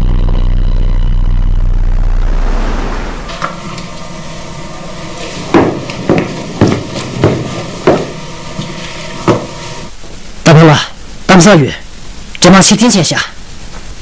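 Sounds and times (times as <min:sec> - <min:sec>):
faint steady hum: 0:00.0 - 0:14.0
footsteps on hard floor: 0:03.2 - 0:10.2.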